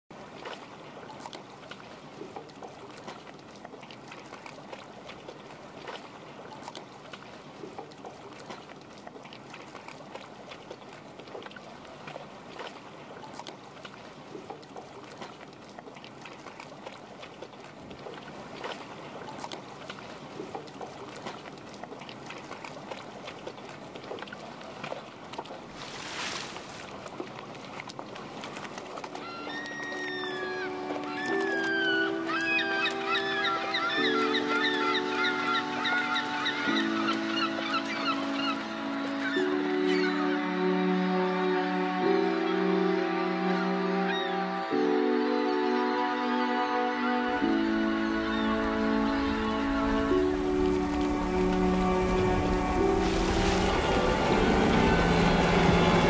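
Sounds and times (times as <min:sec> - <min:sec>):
water lapping and trickling: 0:00.1 - 0:56.0
rush of noise: 0:49.5 - 0:56.0.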